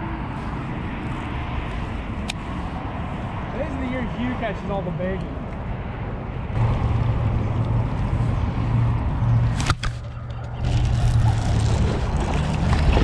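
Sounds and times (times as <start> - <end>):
boat motor humming: 6.6 - 13.0.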